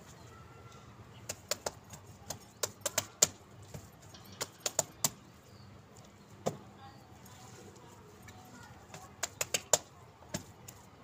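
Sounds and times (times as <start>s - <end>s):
sharp irregular clicks and taps: 1.2s - 3.4s, 4.2s - 5.2s, 8.9s - 10.8s.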